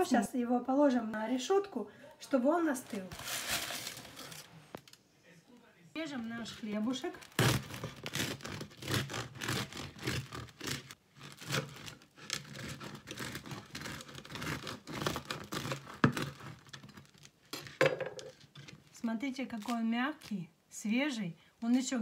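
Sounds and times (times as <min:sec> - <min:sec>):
knife crunching through bread crust: 0:07.2 - 0:17.3.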